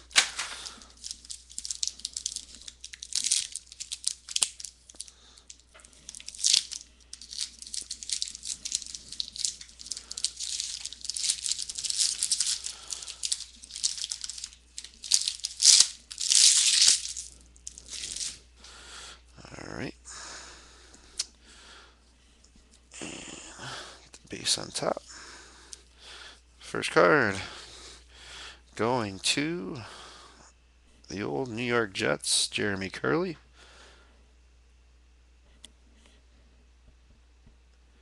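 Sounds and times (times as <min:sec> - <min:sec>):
foil pack crinkling: 0:00.0 - 0:18.4.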